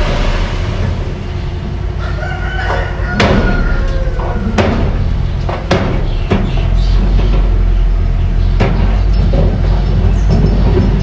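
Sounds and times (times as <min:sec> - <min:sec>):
long high falling tone: 0:00.0 - 0:05.2
bulldozer diesel engine running: 0:00.0 - 0:11.0.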